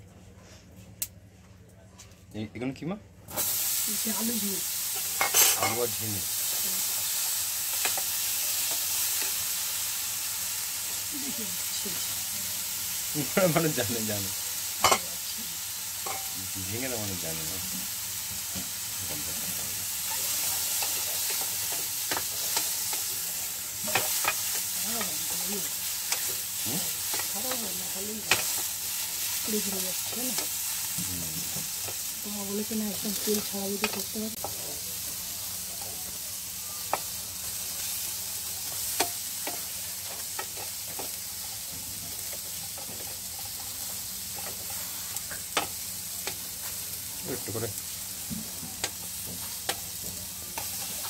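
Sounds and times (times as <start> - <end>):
vegetables sizzling: 3.3 - 51.0
spatula scraping frying pan: 20.0 - 30.6.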